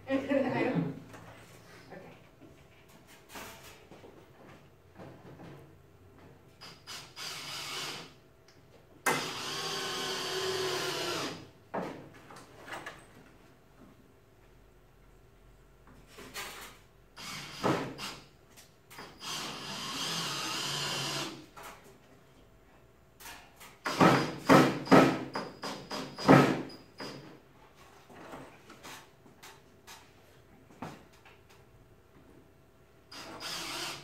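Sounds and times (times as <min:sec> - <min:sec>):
power drill driving into wood: 0:06.6 - 0:08.1, 0:09.1 - 0:11.5, 0:17.2 - 0:18.2, 0:19.0 - 0:21.4, 0:33.1 - 0:34.0
loud sharp knocks and clatter: 0:23.8 - 0:27.2.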